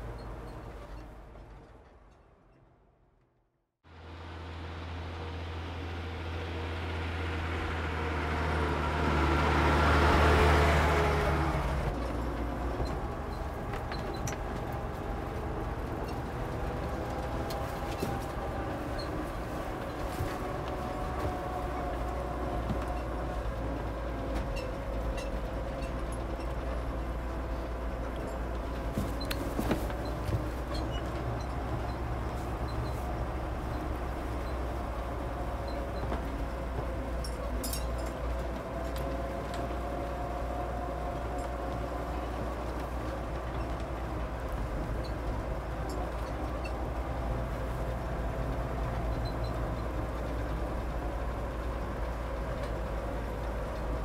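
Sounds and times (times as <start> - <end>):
vehicle interior rumble: 0.0 - 3.1, 3.8 - 54.0.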